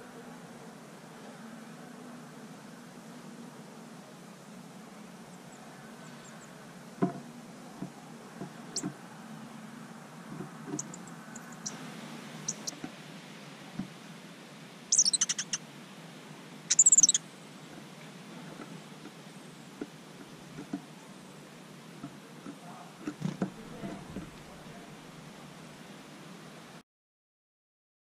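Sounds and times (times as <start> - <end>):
faint high bird chirps: 5.3 - 6.6, 10.8 - 11.8, 12.4 - 12.8, 14.9 - 15.6, 16.7 - 17.4
high-pitched bird trills: 12.5 - 12.7, 14.9 - 15.6, 16.7 - 17.2.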